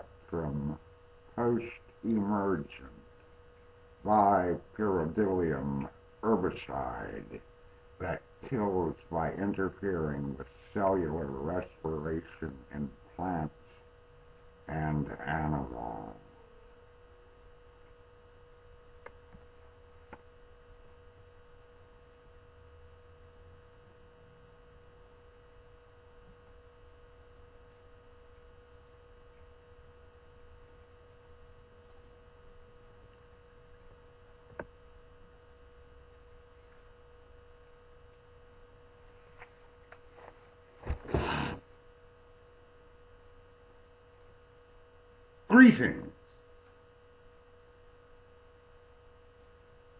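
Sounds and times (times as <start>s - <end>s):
electrical hum with pitched tone: 0.0s - 49.9s
rustling noise: 39.3s - 41.6s.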